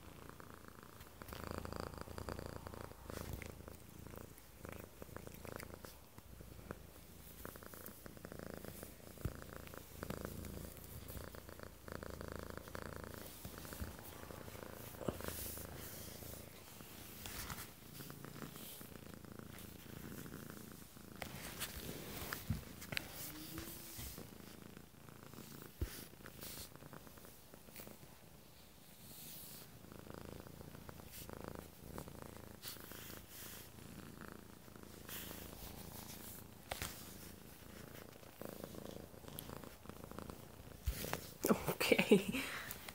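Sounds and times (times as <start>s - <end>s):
cat purring: 0.0s - 42.9s.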